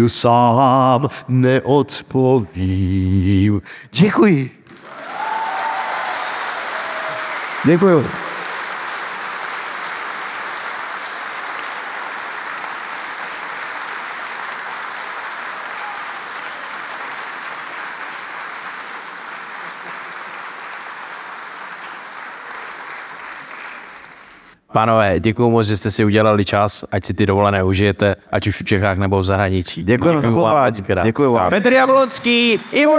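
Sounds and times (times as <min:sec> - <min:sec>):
audience applauding: 0:04.6 - 0:24.6, 0:31.5 - 0:32.9.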